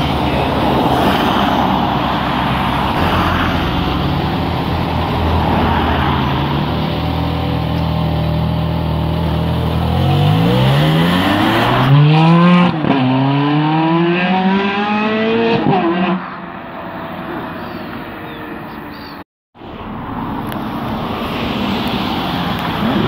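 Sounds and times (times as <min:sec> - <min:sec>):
car engine revving: 0:08.4 - 0:16.4.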